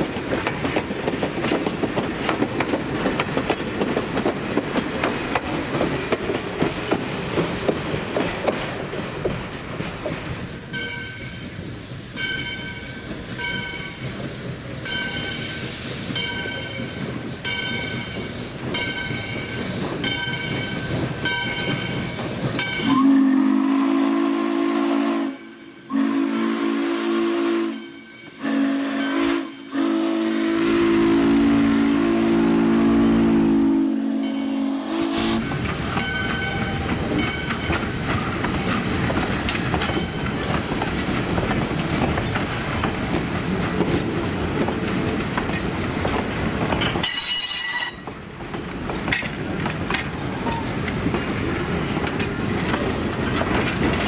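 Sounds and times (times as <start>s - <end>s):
train wheels clattering on rails: 0.0s - 54.0s
steam locomotive chime whistle: 14.8s - 49.5s.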